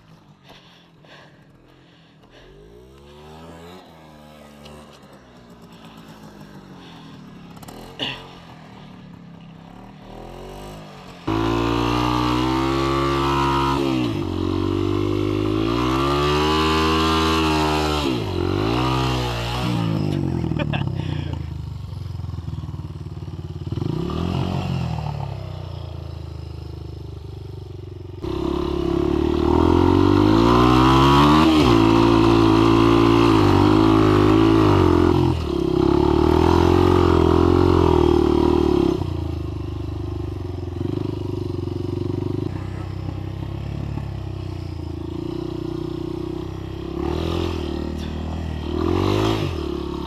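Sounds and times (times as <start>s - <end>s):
dirt bike engine revving: 0.0s - 21.6s, 22.4s - 26.4s, 28.2s - 50.0s.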